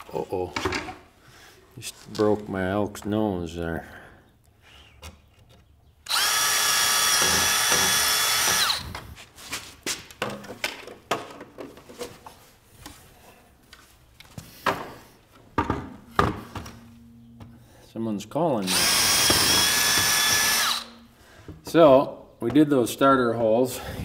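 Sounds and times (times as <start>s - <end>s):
cordless drill whining: 6.0s - 9.2s, 18.6s - 21.1s.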